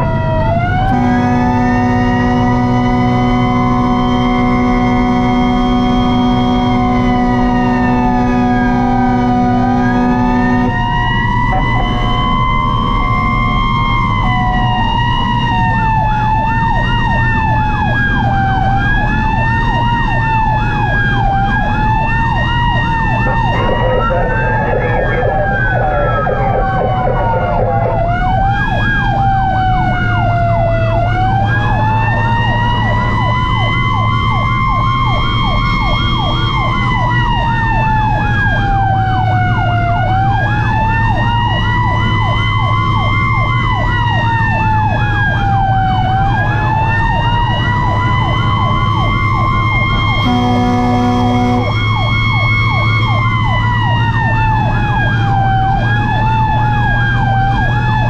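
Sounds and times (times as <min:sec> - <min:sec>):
fast sweeping siren: 0:00.0 - 0:58.0
slow wailing siren: 0:00.0 - 0:58.0
truck engine drone: 0:00.0 - 0:58.0
horn blast: 0:00.8 - 0:12.4, 0:23.1 - 0:28.1, 0:50.2 - 0:52.0.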